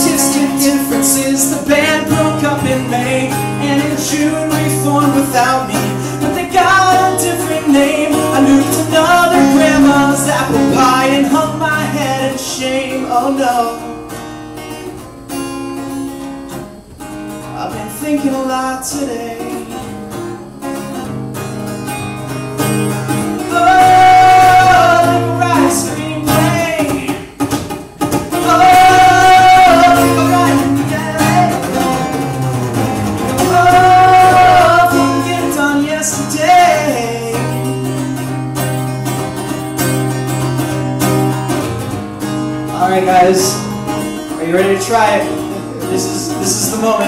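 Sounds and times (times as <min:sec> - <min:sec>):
man singing into a microphone: 0:00.0 - 0:14.0, 0:17.6 - 0:19.9, 0:23.4 - 0:27.4, 0:28.3 - 0:32.2, 0:33.3 - 0:37.8, 0:42.7 - 0:43.7, 0:44.4 - 0:47.0
strummed acoustic guitar: 0:00.0 - 0:47.0.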